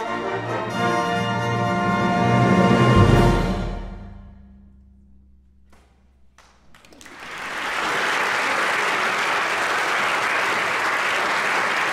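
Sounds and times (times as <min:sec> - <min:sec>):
audience applause: 0:06.4 - 0:11.9.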